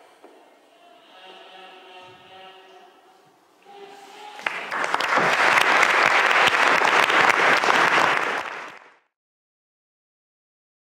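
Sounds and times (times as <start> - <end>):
audience applauding: 4.3 - 9.1.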